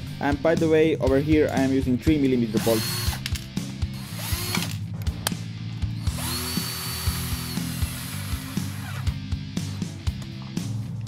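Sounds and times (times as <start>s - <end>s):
cordless drill whine: 2.6s - 3.2s, 4.0s - 4.8s, 6.0s - 9.2s.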